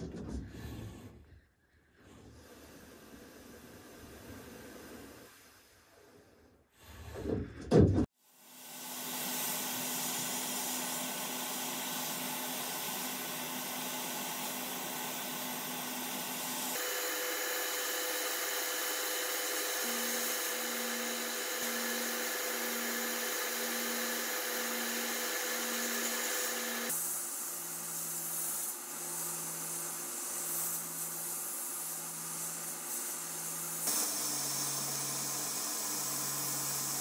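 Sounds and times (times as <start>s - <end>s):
sandblasting gun hissing: 8.4s - 37.0s.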